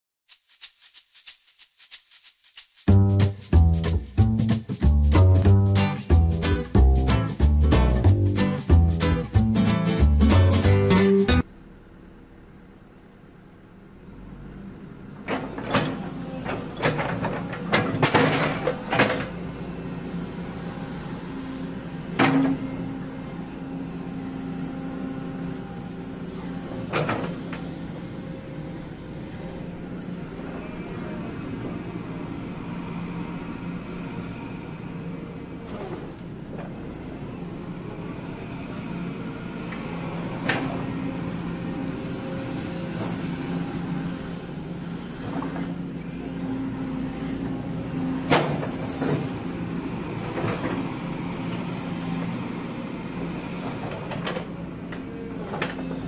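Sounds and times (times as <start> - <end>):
excavator diesel engine running: 2.9 - 11.6, 14.2 - 56.0.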